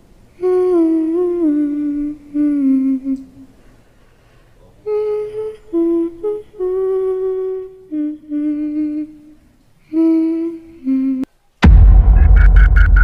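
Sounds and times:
person humming a slow tune: 0.3s - 3.6s, 4.8s - 11.3s
very loud low noise burst: 11.4s - 13.0s.

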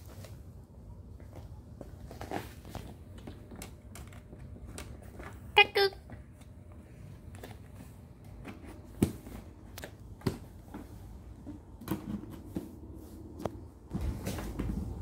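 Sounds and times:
shuffle: 0.0s - 3.5s.

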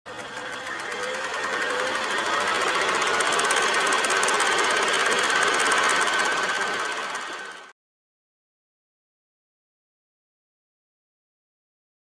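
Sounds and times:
film projector clatter: 0.1s - 7.7s
whirring motor: 0.1s - 7.7s.

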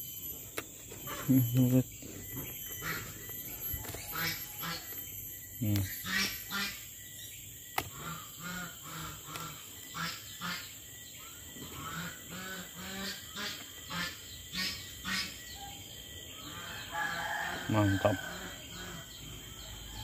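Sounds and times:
waterfowl calling: 4.1s - 5.0s.

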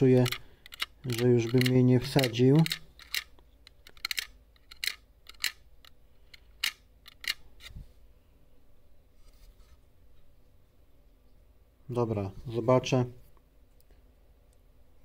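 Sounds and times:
faint handling ticks: 0.0s - 5.5s.

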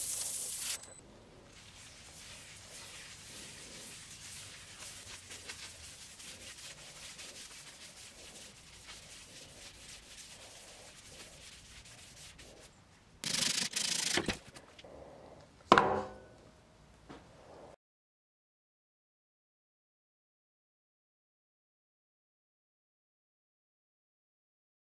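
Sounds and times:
rag wiping a bowl: 0.0s - 14.6s.

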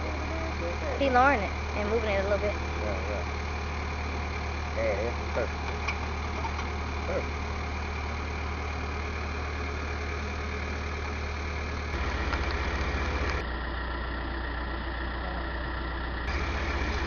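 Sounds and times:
excavator engine running: 0.0s - 17.0s.

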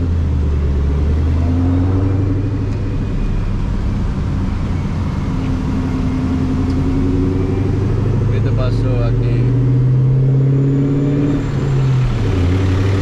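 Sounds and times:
car engine drone: 0.0s - 13.0s
road noise: 0.0s - 13.0s.

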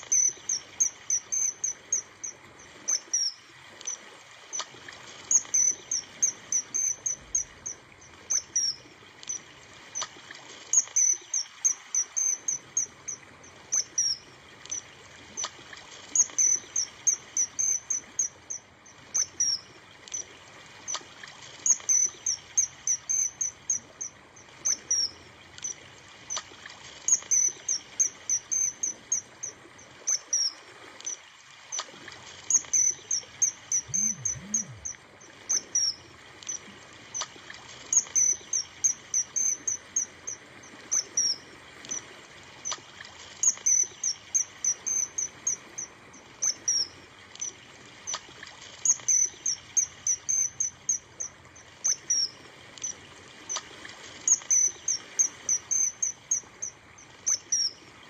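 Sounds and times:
short high-pitched chirps: 33.7s - 35.0s.

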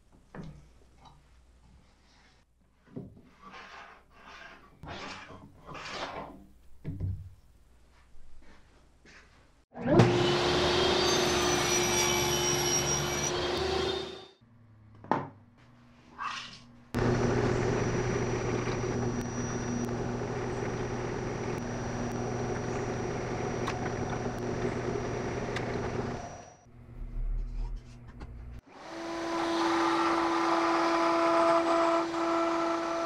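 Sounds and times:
table saw running: 9.9s - 14.2s, 17.0s - 26.6s, 28.7s - 33.0s
drill press drilling acrylic: 17.0s - 26.6s
dust extractor running: 17.0s - 26.6s.

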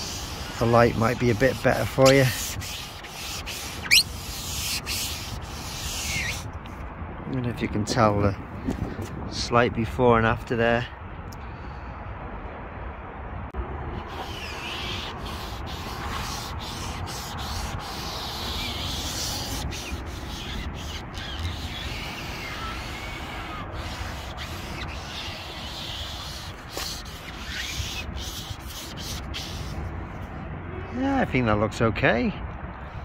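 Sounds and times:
sponge scrubbing plastic trim: 0.0s - 6.5s, 14.1s - 29.8s.

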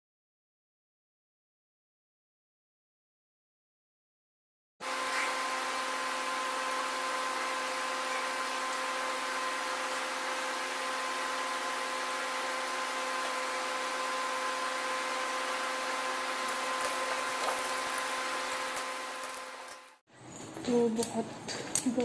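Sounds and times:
electric fan humming: 4.8s - 22.0s.

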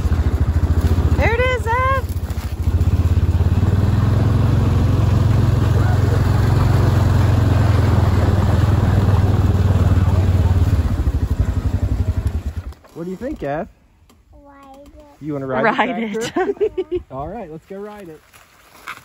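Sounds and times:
atv engine running: 0.0s - 13.7s.

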